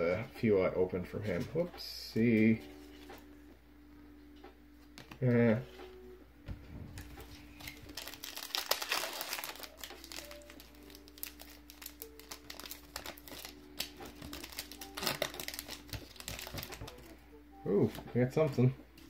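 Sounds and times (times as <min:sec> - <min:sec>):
faint music: 0:00.0 - 0:19.0
foil wrapper crinkling and tearing: 0:07.0 - 0:17.1.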